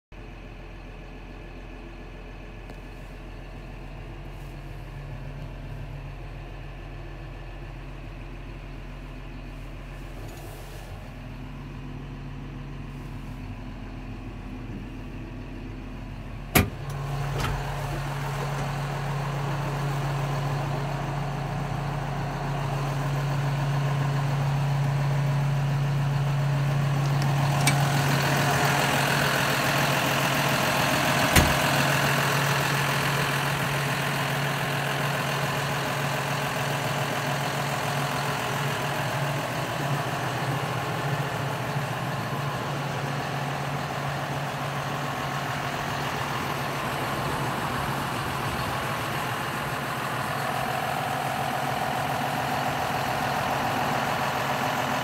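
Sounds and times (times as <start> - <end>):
tractor diesel engine idling: 0.1 - 55.0
cab door click: 16.5 - 17.6.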